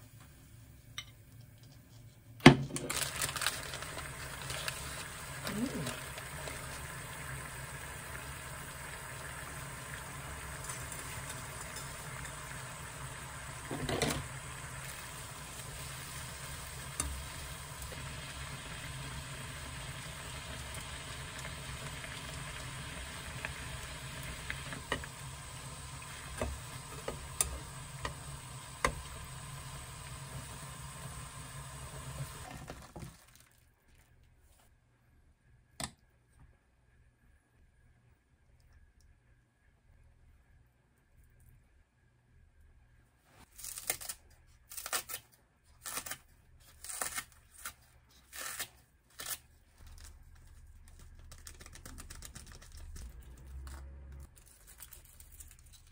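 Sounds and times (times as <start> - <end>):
water boiling in a pan: 2.8 - 33.5.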